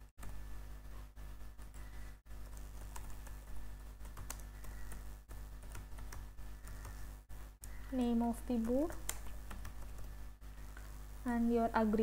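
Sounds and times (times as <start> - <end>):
steady low hum: 0.0 - 12.0
keyboard typing clicks: 2.4 - 7.0, 7.6 - 10.1.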